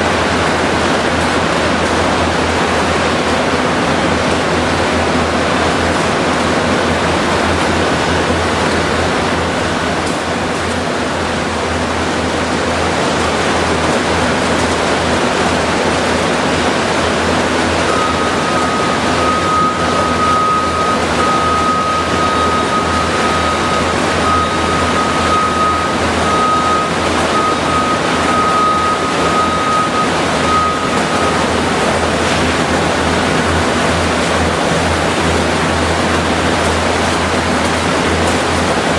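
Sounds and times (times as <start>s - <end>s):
machinery roar: 0.0s - 38.9s.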